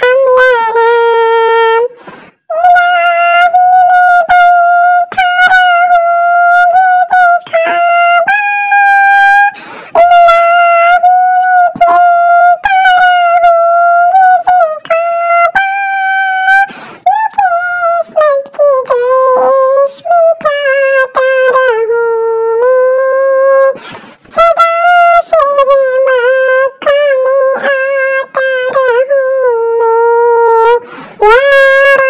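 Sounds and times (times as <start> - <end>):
person singing unaccompanied: 0.0 - 32.0
singer breathing: 1.9 - 2.5, 9.6 - 10.0, 16.7 - 17.1, 23.8 - 24.3, 30.8 - 31.2.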